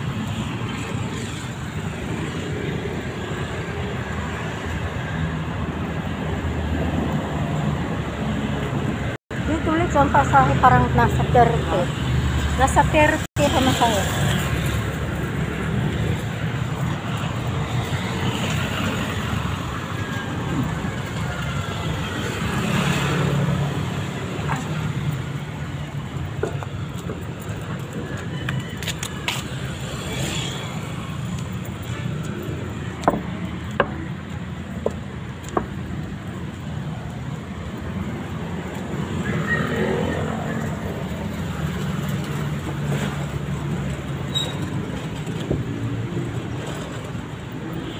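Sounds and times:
road traffic noise: 0.0 - 47.9.

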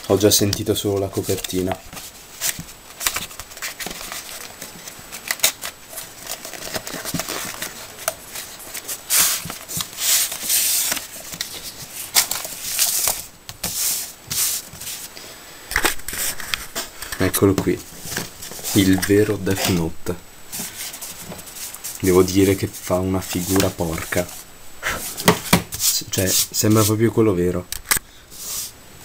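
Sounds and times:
notebook handling rustling: 0.0 - 19.9, 20.5 - 24.4.

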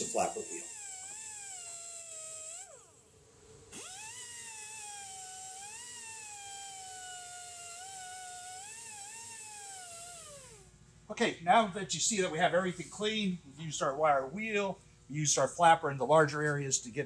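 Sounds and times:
air die grinder whining: 0.0 - 3.1, 3.7 - 10.7.

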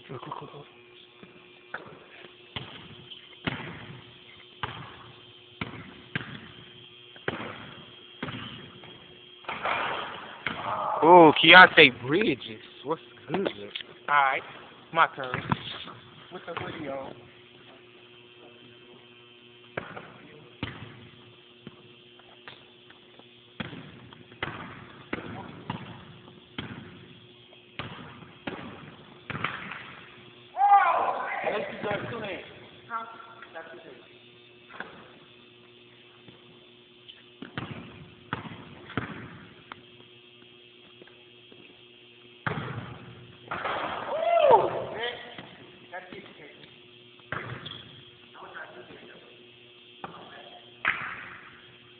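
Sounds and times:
faint steady hum: 0.0 - 51.9
basketball bouncing on hardwood floor: 2.6 - 4.0, 4.6 - 5.0, 5.6 - 6.4, 23.6 - 26.0, 26.6 - 26.9, 37.4 - 39.4, 42.4 - 43.8
basketball bouncing on wooden floor: 4.6 - 5.0, 5.6 - 6.4, 26.6 - 26.9, 37.4 - 39.4.

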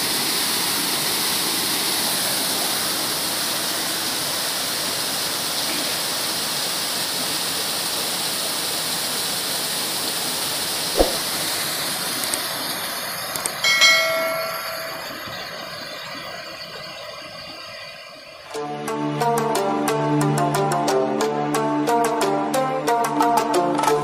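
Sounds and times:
sharp click: 11.0 - 11.3
short ringing tone: 13.6 - 16.6.

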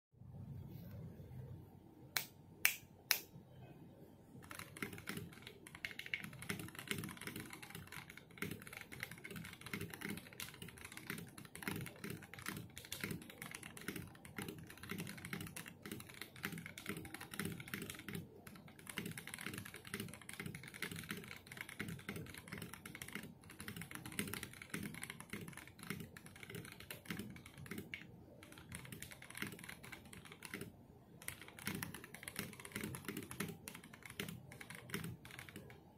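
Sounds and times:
finger snaps: 2.2 - 3.3
fast keyboard typing: 4.4 - 35.9.

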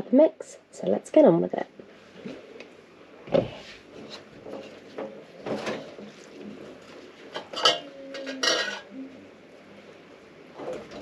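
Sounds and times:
metal pot and sieve clattering: 7.3 - 8.9.

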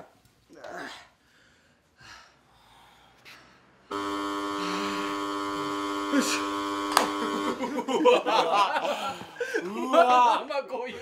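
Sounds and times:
loud buzzer tone: 3.9 - 7.8.

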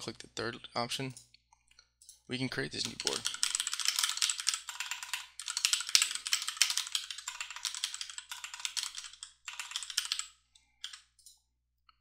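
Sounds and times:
fast typing on keyboard: 2.7 - 11.1.

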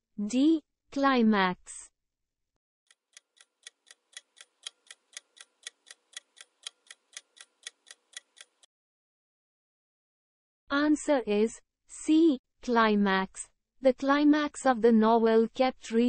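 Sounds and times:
clock ticking faintly: 2.9 - 8.7.

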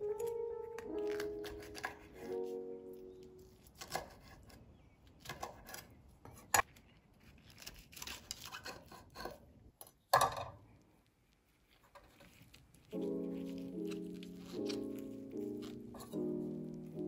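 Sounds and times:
music notes: 0.0 - 3.6, 12.9 - 17.0
knife slicing and scraping: 0.1 - 2.6, 3.4 - 4.6, 5.2 - 9.4, 11.7 - 17.0.

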